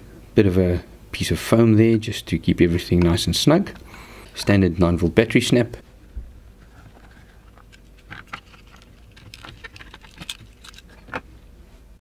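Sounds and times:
plastic case clicking open: 7.5s - 11.3s.

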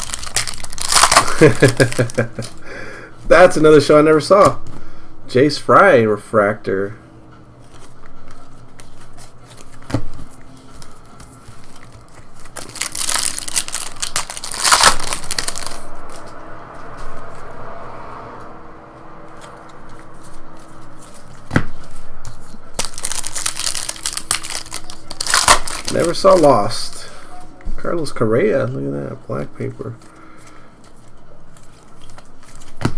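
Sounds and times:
foil card packs crinkling: 0.0s - 2.6s, 7.7s - 16.2s, 19.4s - 27.1s, 29.6s - 32.9s.

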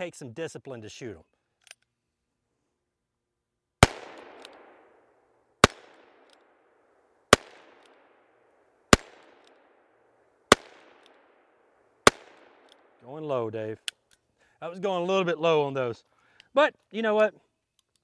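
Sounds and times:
revolver shots with echo: 3.8s - 5.0s, 5.6s - 6.2s, 7.3s - 8.1s, 10.5s - 11.2s, 12.1s - 12.7s.

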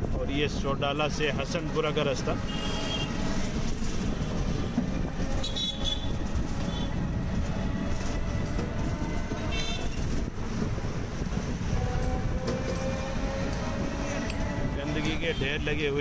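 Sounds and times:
road and wind rumble: 0.0s - 16.0s
vehicle horn toots: 2.5s - 3.2s, 5.4s - 6.9s, 9.5s - 10.0s.

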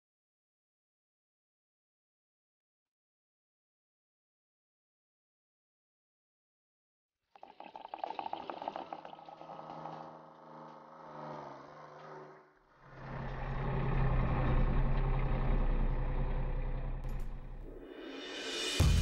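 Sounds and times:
liquid gurgling into tank: 7.4s - 10.4s
diesel engine running: 9.4s - 17.8s.

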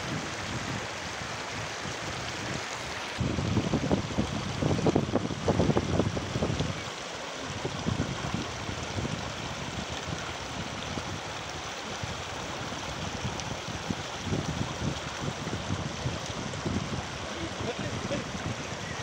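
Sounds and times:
stream splashing over stones: 0.0s - 19.0s
wind rumble on microphone: 0.0s - 19.0s.

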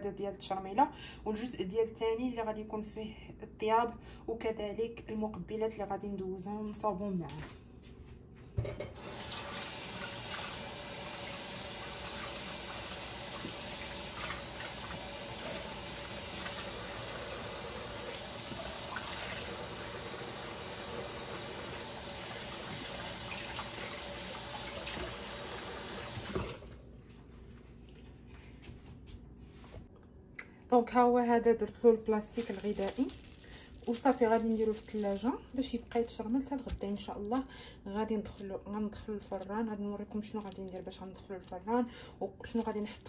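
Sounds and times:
tap water pouring into sink: 9.0s - 26.7s.

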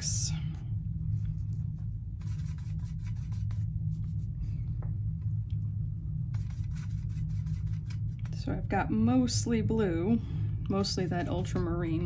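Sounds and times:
steady low hum: 0.0s - 12.0s
brush scratchy strokes: 1.1s - 4.4s, 6.3s - 8.6s, 10.7s - 12.0s.

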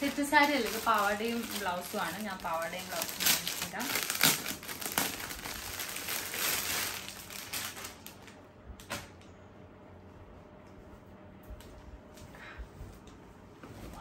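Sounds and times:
plastic packaging crinkling: 0.0s - 9.1s.

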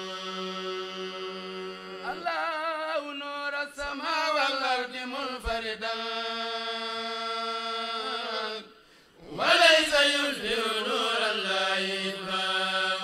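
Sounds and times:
men chanting: 0.0s - 13.0s.

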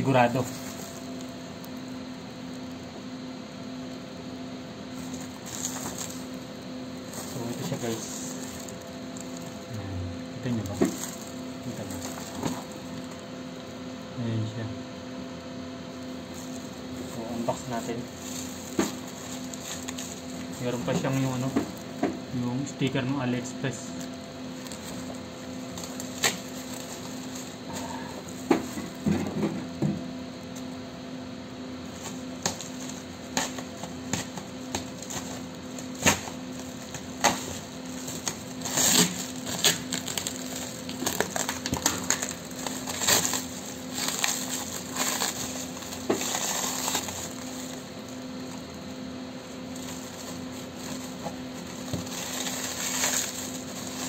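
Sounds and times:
plastic bag crinkling and tearing: 0.0s - 1.9s, 4.9s - 9.7s, 10.4s - 13.3s, 16.2s - 22.0s, 23.6s - 29.0s, 31.8s - 48.8s, 49.5s - 54.0s.

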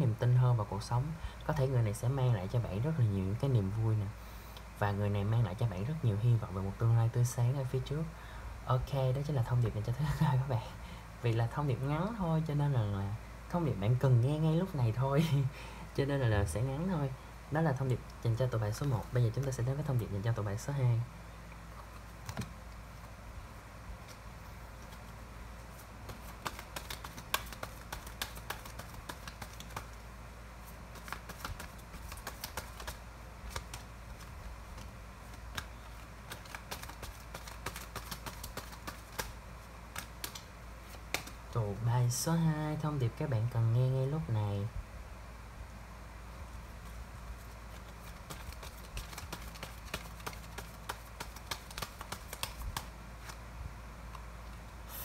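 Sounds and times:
cards being shuffled: 17.9s - 20.3s, 21.8s - 23.2s, 24.0s - 30.0s, 30.6s - 41.5s, 46.7s - 53.5s.

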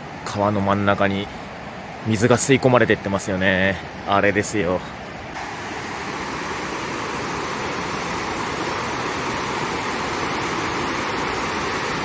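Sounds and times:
waterfall rushing: 5.3s - 12.0s.

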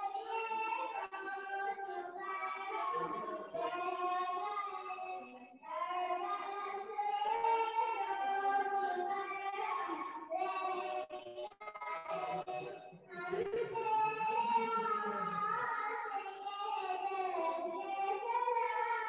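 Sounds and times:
high voice singing: 2.5s - 5.4s, 12.1s - 15.8s.

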